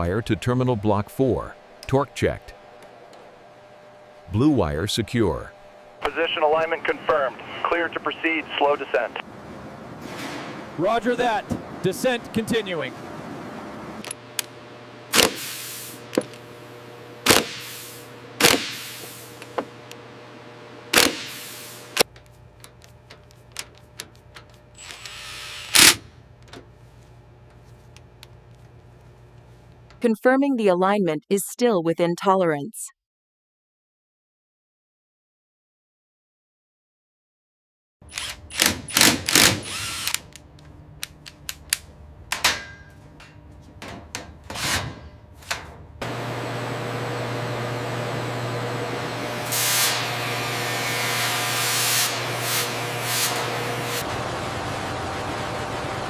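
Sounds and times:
power tool blasts: 0:15.1 - 0:16.2, 0:17.2 - 0:19.4, 0:20.9 - 0:22.1, 0:24.8 - 0:26.1, 0:38.1 - 0:40.3, 0:49.3 - 0:54.7
rotary tool humming: 0:21.0 - 0:26.1, 0:38.1 - 0:40.4
cordless drill running: 0:24.8 - 0:26.0, 0:38.1 - 0:40.3.

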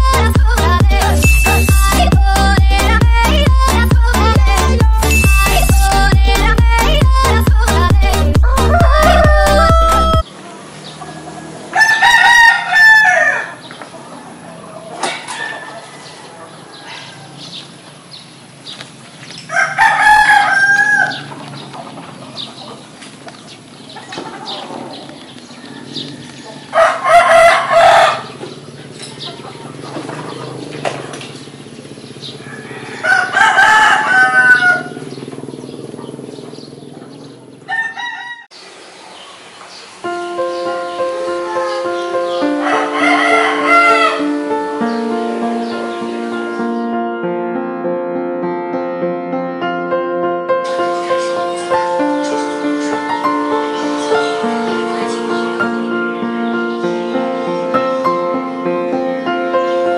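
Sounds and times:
rooster crowing: 0:08.4 - 0:10.3, 0:11.0 - 0:17.6, 0:19.5 - 0:21.4, 0:25.5 - 0:28.4, 0:32.3 - 0:35.2, 0:37.7 - 0:38.6, 0:41.2 - 0:44.6.

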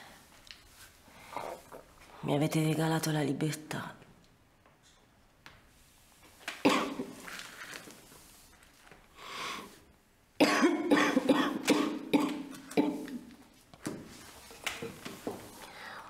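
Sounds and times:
long breath: 0:15.6 - 0:16.0.

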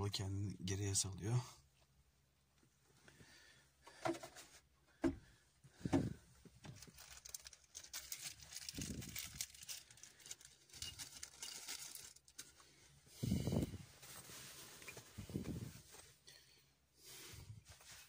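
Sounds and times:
crinkling and rustling: 0:05.9 - 0:12.8, 0:13.6 - 0:16.3, 0:17.6 - 0:18.0.

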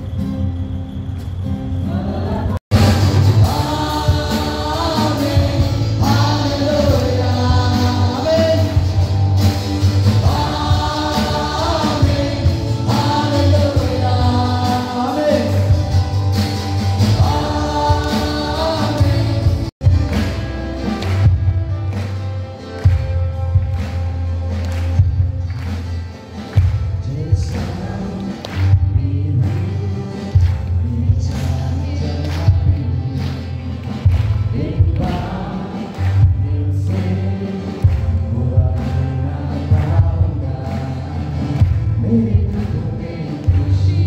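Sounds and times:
drums: 0:00.0 - 0:44.0
guitar: 0:00.0 - 0:44.0
singers in a group: 0:01.8 - 0:19.7, 0:27.3 - 0:44.0.

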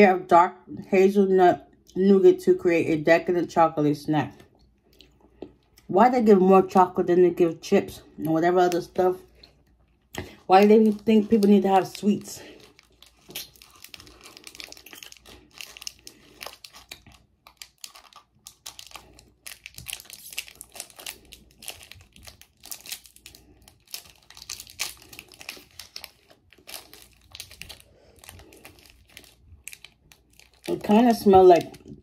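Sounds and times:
plastic wrapper crinkling and tearing: 0:08.6 - 0:32.0.

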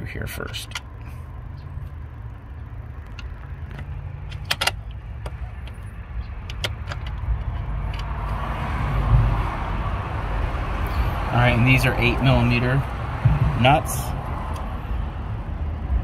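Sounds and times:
steady low rumble: 0:00.0 - 0:16.0
metal clicks and taps: 0:03.0 - 0:08.4.

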